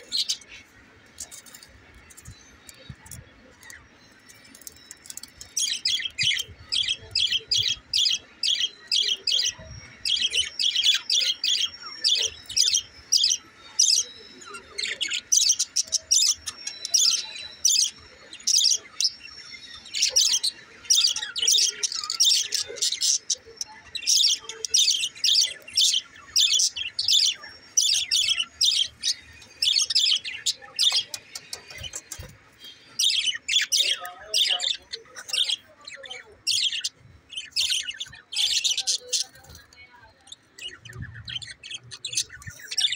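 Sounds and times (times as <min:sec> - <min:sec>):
budgerigars chirping and warbling: 0:00.0 - 0:42.9.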